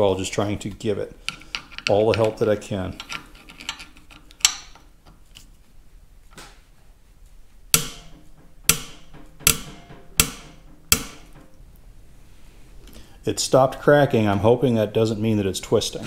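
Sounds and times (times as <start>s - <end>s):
rusted screw cracking: 1.2s - 5.4s.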